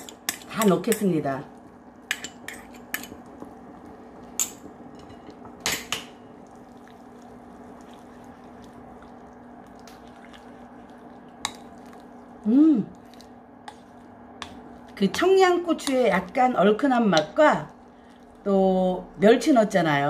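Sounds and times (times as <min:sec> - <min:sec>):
steady low hum: 0:00.0 - 0:20.0
wooden spoon stirring stew: 0:06.4 - 0:18.4.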